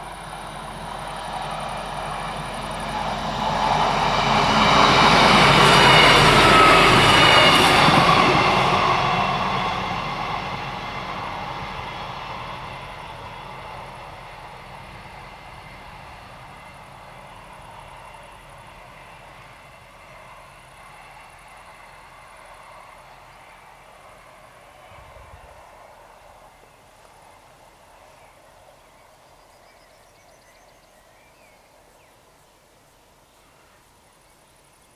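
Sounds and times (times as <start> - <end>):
steady low hiss: 0.0 - 4.6, 13.0 - 34.9
diesel railcar passing: 0.0 - 34.7
bird chirping: 28.1 - 34.9.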